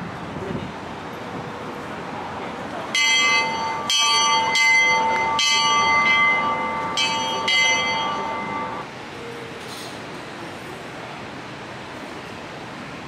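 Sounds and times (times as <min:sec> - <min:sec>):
small bell ringing: 0:03.0 - 0:08.8.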